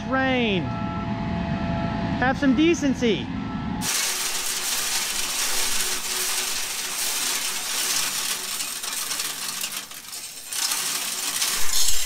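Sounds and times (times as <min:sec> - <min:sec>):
grain pouring rattle: 0:03.8 - 0:12.0.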